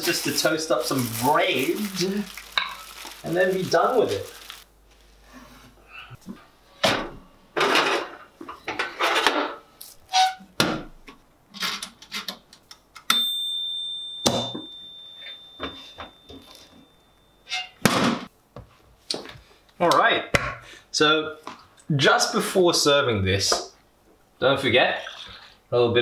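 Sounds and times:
timer bell ding: 13.1 - 17.5.

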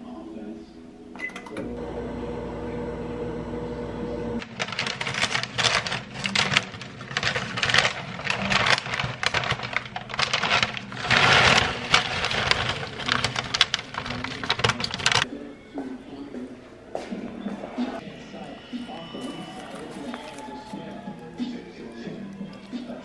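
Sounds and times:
microwave oven humming: 1.3 - 4.4
popcorn poured into glass bowl: 4.4 - 15.2
paper bag crinkling: 4.4 - 15.3, 18.9 - 23.0.

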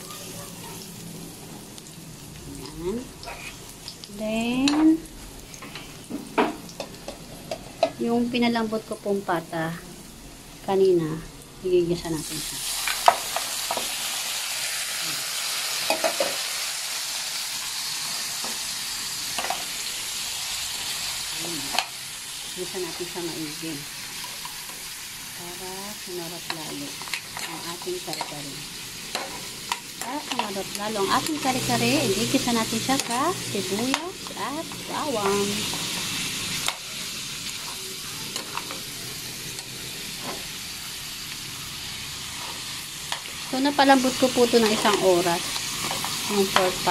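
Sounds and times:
meat sizzling in frying pan: 0.0 - 46.9.

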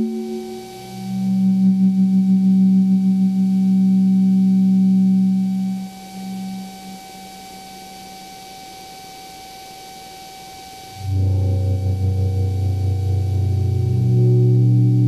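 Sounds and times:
low synthesizer drone: 0.0 - 7.0, 11.0 - 15.0
thin steady high tone: 0.0 - 15.0
short quieter synth tone: 11.0 - 15.0.

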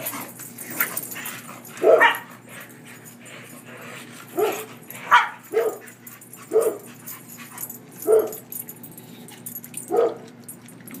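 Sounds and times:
dogs barking: 0.7 - 3.2, 4.2 - 8.7, 9.8 - 10.4.

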